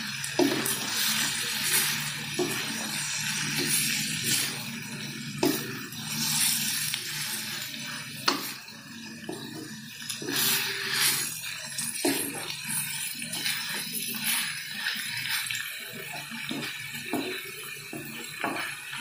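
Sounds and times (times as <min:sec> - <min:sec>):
wooden spatula scraping wok: 0:00.4 - 0:04.7, 0:09.3 - 0:15.5
spatula knocking pan: 0:02.4 - 0:02.9, 0:16.4 - 0:18.8.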